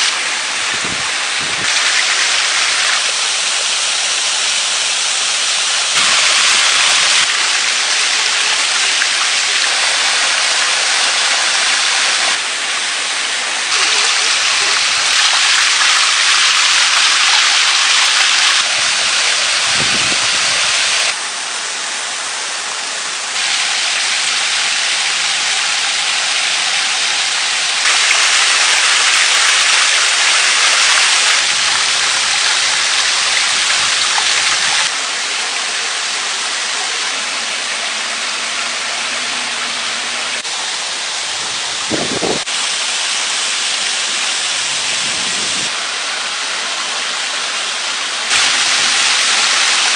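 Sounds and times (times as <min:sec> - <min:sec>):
stream rushing over rocks: 0:00.0 - 0:49.9.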